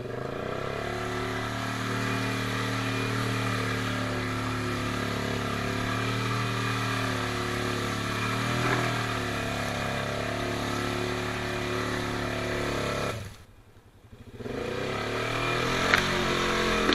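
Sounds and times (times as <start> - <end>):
atv engine running under load: 0.0 - 16.9.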